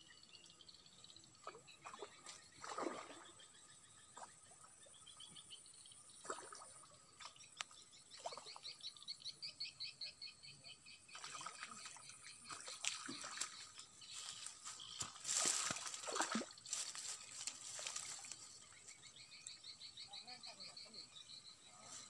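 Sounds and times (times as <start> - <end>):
water sloshing and splashing: 1.4 - 4.5, 11.1 - 19.0.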